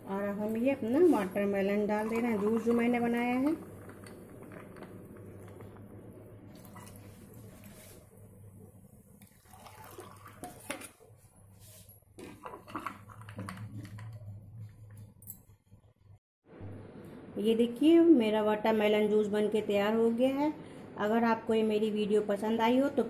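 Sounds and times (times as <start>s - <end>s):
juice pouring over ice: 1.9s - 5.8s, 6.5s - 8.0s, 9.2s - 11.1s.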